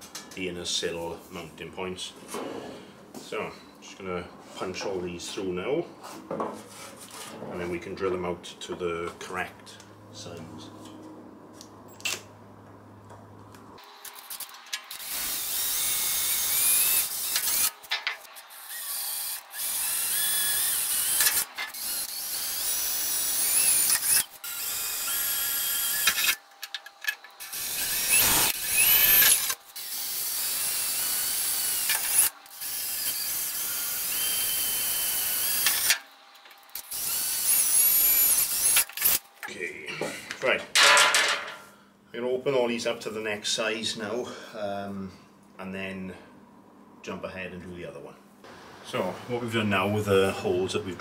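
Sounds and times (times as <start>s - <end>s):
drill bit screeching through metal: 14.0s - 26.4s, 27.4s - 35.9s, 36.8s - 39.2s.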